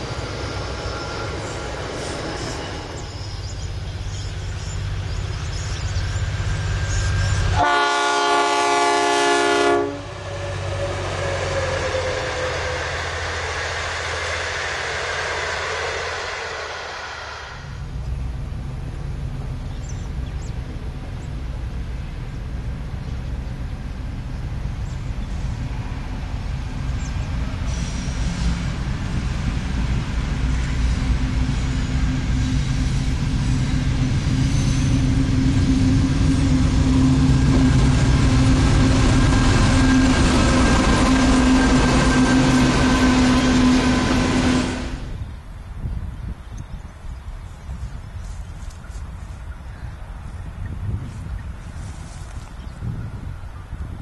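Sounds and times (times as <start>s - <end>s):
diesel locomotive engine drone: 0.0s - 54.0s
steady tones: 8.3s - 19.7s.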